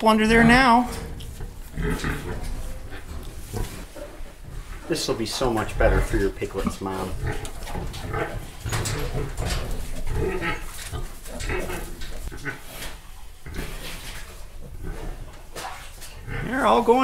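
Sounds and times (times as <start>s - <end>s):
pigs grunting and squealing: 0.0s - 17.0s
pigs moving in bedding: 0.0s - 17.0s.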